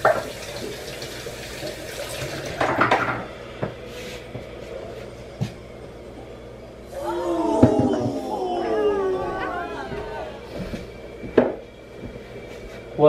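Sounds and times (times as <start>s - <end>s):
water running at sink: 0.0s - 3.1s.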